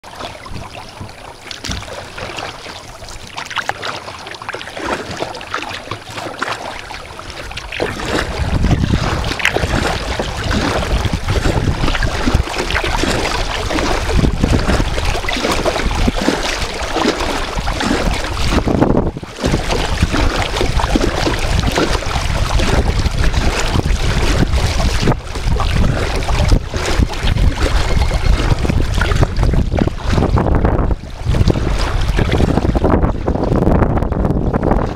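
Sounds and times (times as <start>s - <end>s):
water lapping around kayak hull: 0.0s - 34.9s
wind buffeting microphone: 0.1s - 3.4s, 6.8s - 34.9s.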